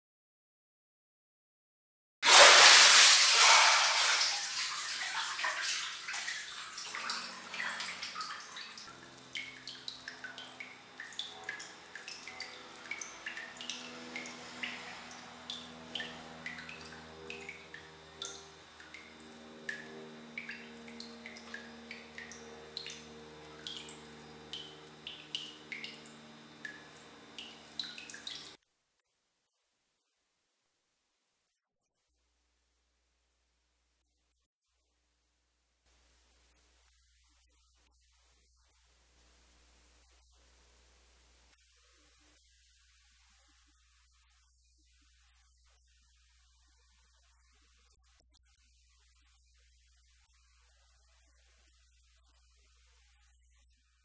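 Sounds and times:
water splashing in bathtub: 2.2s - 28.6s
low steady hum: 2.4s - 28.6s
drips plinking into water: 6.1s - 28.6s.

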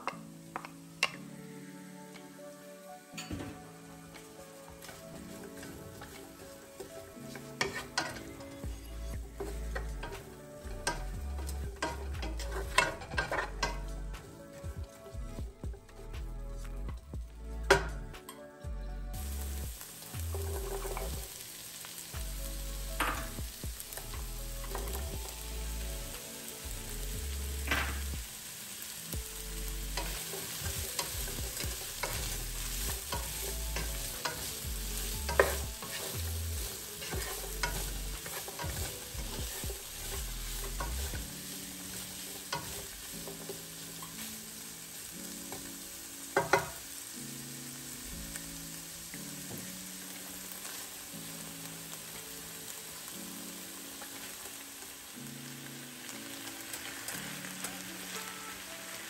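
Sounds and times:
vegetables sizzling in a frying pan: 0.0s - 16.3s, 19.1s - 59.0s
wooden spoon stirring: 30.0s - 44.2s.

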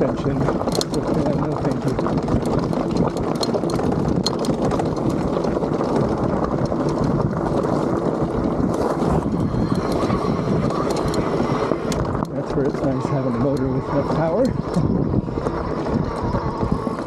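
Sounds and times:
bike rattling: 0.0s - 17.0s
bike tyres rolling over rocks: 0.0s - 17.0s
wind rushing over microphone: 0.0s - 17.0s
clicks and knocks from stones: 0.2s - 12.8s.

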